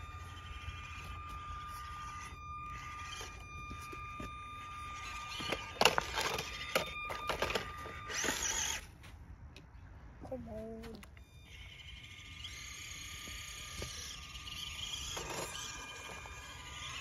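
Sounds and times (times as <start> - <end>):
electric motor whine: 0.0 - 9.0, 11.0 - 17.0
plastic clattering on stones: 5.4 - 8.5.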